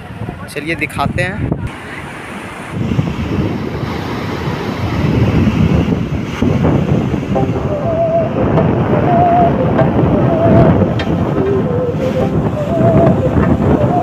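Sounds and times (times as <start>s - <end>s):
wind buffeting microphone: 0.0s - 14.0s
faint wavering tones: 7.3s - 14.0s.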